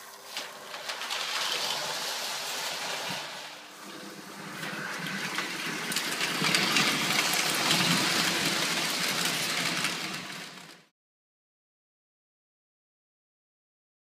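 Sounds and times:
toy train clattering on track: 4.8s - 10.9s.

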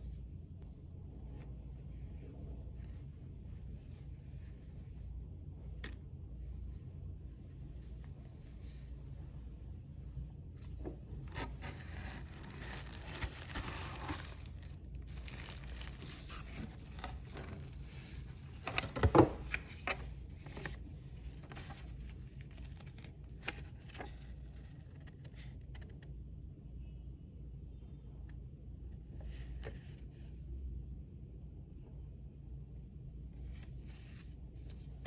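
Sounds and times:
scraping against cardboard: 11.3s - 20.0s
tissue paper crinkling: 11.3s - 24.1s.

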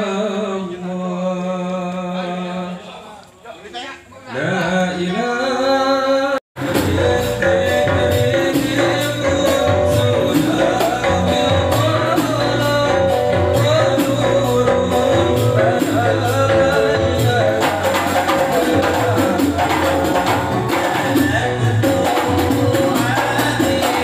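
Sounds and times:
man singing: 0.0s - 3.2s, 4.3s - 24.0s
frame drums beating: 6.6s - 24.0s.

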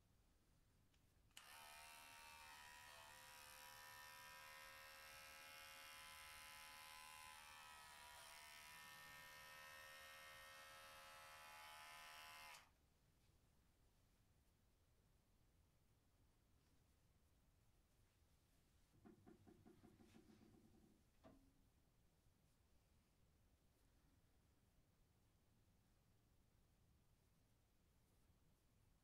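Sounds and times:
electric hair clipper buzzing: 1.4s - 12.7s.

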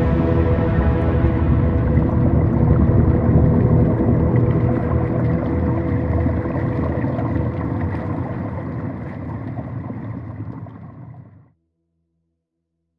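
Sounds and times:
steady hum: 0.0s - 10.0s
muffled underwater rumble: 0.0s - 11.5s.

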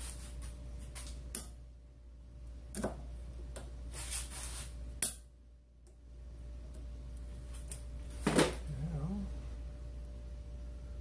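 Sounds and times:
low hum: 5.2s - 11.0s.

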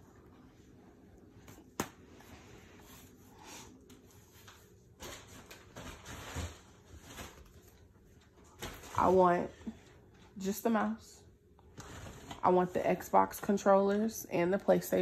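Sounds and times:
rustling and handling noise: 0.0s - 10.6s.

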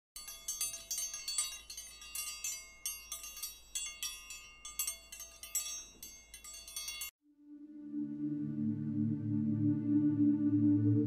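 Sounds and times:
wind chimes ringing: 0.2s - 7.2s.

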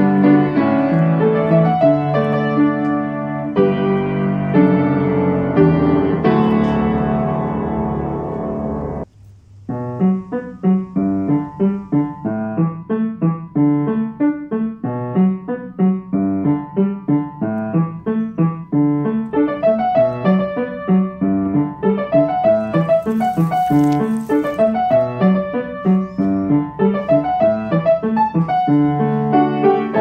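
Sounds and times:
piano music: 0.0s - 9.1s, 9.7s - 30.0s.

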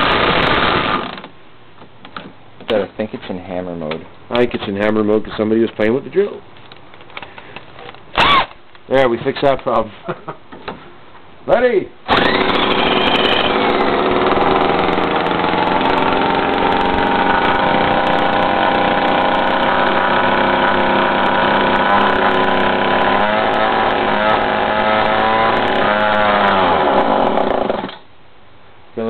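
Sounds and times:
two-stroke engine running: 12.1s - 27.8s
electric drill spinning: 12.1s - 28.0s.

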